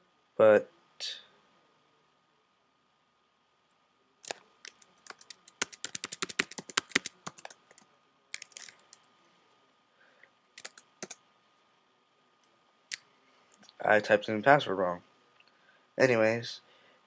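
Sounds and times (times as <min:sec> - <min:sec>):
keyboard typing: 0:04.2 - 0:09.0, 0:10.6 - 0:11.2.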